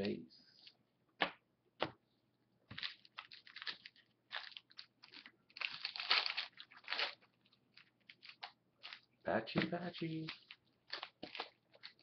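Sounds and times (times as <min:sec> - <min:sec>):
wrapper tearing and crinkling: 0:02.7 - 0:09.0, 0:10.0 - 0:12.0.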